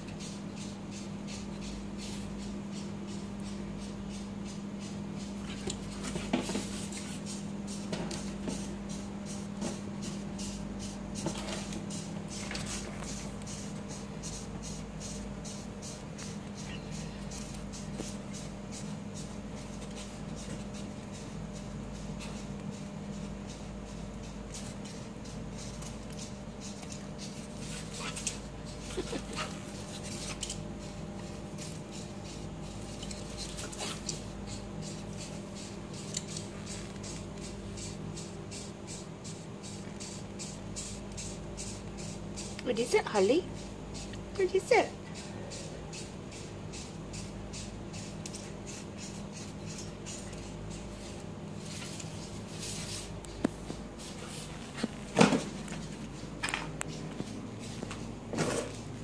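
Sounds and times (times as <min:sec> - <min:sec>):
steady low hum: 0:00.0 - 0:59.0
puppy claws on tile floor: 0:32.7 - 0:34.4.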